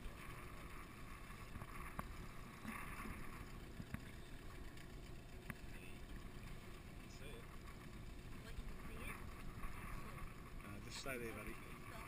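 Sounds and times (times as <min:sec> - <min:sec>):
waves lapping against a boat hull: 0:00.0 - 0:12.0
faint clicks: 0:01.5 - 0:06.9.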